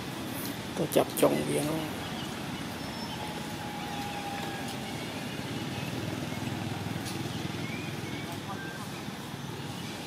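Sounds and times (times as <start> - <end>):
vehicle engine running: 1.8 - 9.8.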